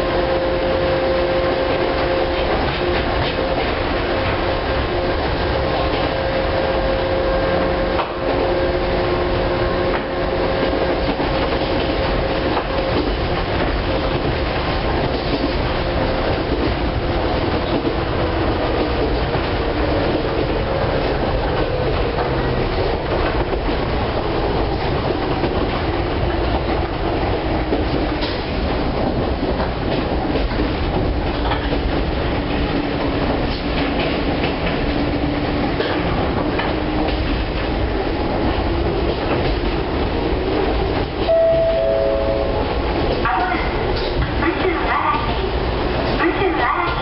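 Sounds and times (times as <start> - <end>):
train running gear rumble: 0.0 - 47.0
wheels clacking over rail joints: 7.9 - 41.3
falling tones: 41.3 - 42.8.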